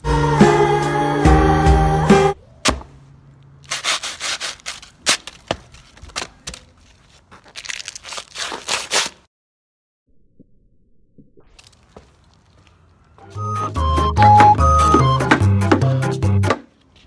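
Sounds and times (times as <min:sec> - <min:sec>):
paper ball crunched underfoot: 0:03.6 - 0:09.3.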